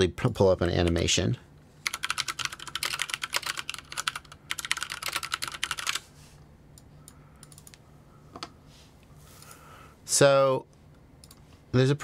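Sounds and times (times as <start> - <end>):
fast typing on keyboard: 1.8 - 6.0.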